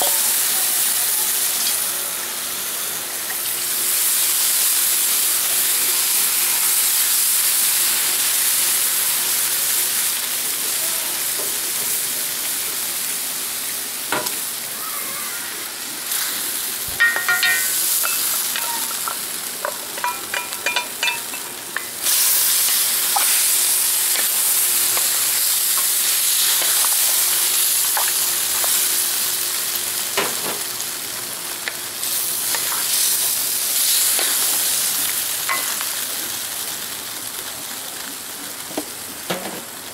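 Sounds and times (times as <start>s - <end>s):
food sizzling in a wok: 0.0s - 39.9s
wooden spoon knocking: 17.0s - 21.3s.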